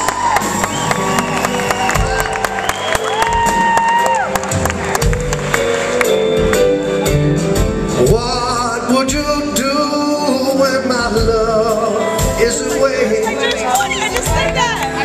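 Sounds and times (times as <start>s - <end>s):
live band playing: 0.0s - 15.0s
drum hits: 3.2s - 9.6s
man singing with vibrato: 7.8s - 13.4s.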